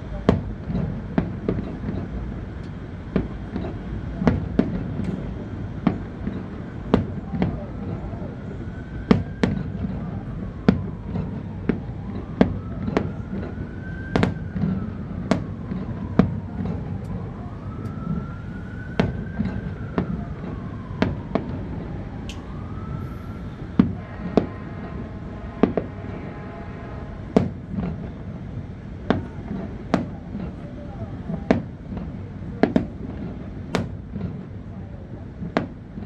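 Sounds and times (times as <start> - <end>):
low continuous rumble: 0.0 - 36.0
siren wailing: 5.6 - 25.7
fireworks bangs: 10.7 - 21.7, 22.3 - 25.0, 27.3 - 28.2, 31.4 - 34.5.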